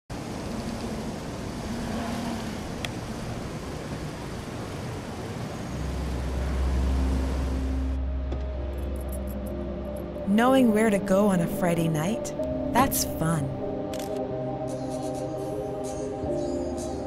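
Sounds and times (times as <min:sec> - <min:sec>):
road and traffic hiss: 0:00.1 - 0:10.2.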